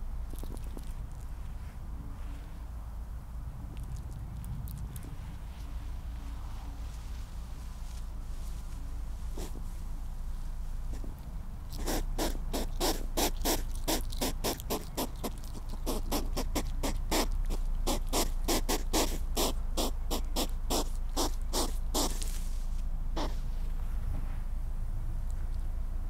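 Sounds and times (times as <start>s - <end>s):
hedgehog snuffling huffs: 9.3s - 9.6s, 11.7s - 22.4s, 23.2s - 23.5s.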